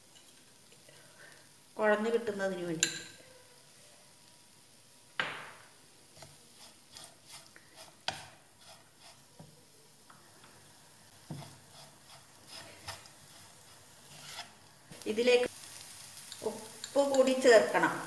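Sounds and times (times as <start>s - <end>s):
spatula scraping in frying pan: 6.1s - 9.6s, 11.1s - 17.7s.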